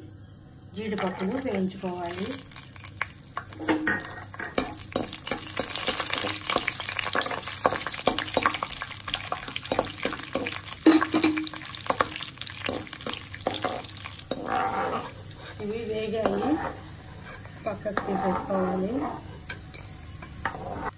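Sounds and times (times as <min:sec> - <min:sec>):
nuts sizzling in oil: 0:00.8 - 0:20.9
metal spatula scraping pan: 0:03.4 - 0:19.5, 0:20.3 - 0:20.9.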